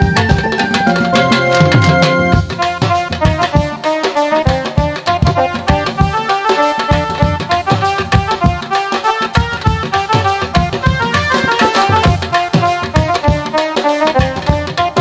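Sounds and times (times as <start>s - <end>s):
electronic keyboard melody: 0.0s - 7.8s, 9.2s - 13.2s
dhol and drum beats: 0.0s - 15.0s.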